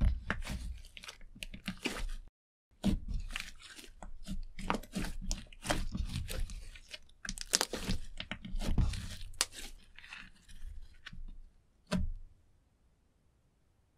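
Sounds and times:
slime crackling and popping: 4.9s - 10.1s.

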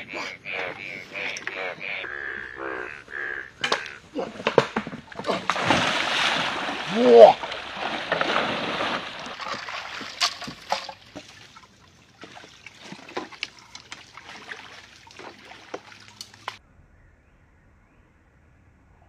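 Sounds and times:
water splashing from wading: 0.0s - 16.6s
water trickling: 5.1s - 16.6s.

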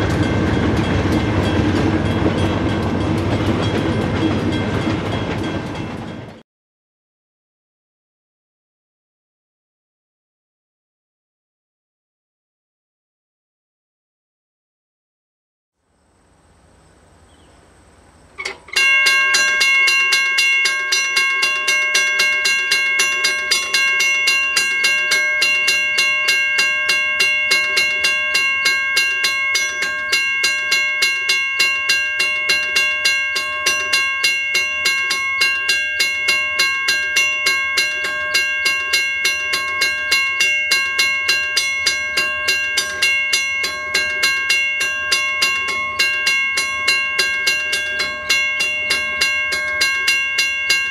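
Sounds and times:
railroad crossing bell ringing: 0.0s - 6.4s, 18.4s - 50.9s.

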